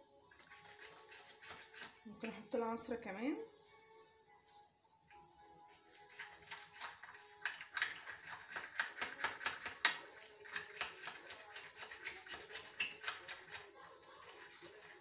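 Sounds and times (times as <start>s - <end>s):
metal spoon clicking against cup: 12.6s - 13.2s.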